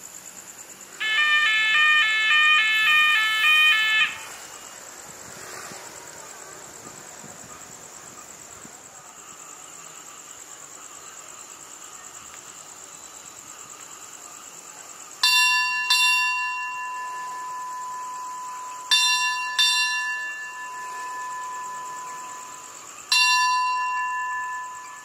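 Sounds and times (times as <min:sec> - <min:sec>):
crickets chirping: 0:00.0 - 0:25.0
station bell ringing: 0:15.2 - 0:25.0.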